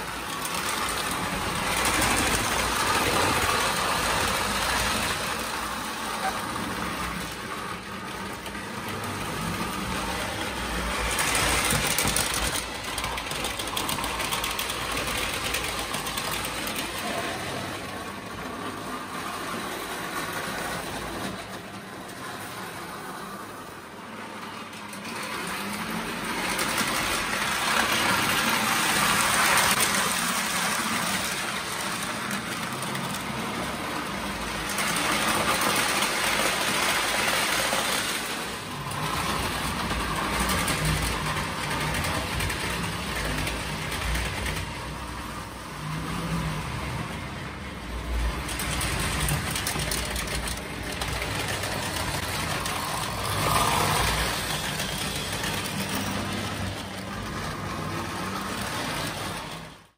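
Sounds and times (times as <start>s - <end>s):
model train motor whirring: 0.0s - 17.8s, 47.9s - 59.9s.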